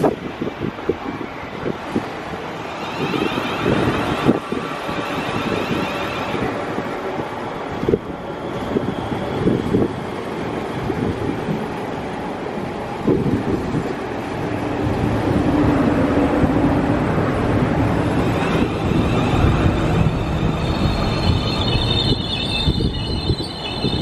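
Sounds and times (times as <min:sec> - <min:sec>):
electric train running slowly: 0:00.0 - 0:24.0
wind buffeting microphone: 0:00.0 - 0:24.0
high whine: 0:17.8 - 0:24.0.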